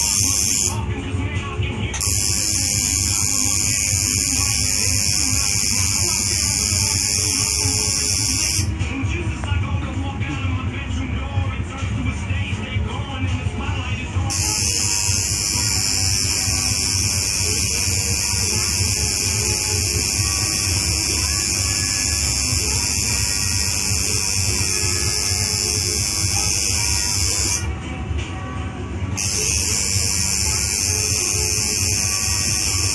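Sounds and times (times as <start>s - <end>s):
tattoo machine buzzing: 0.0s - 0.8s, 2.0s - 8.7s, 14.3s - 27.7s, 29.2s - 32.9s.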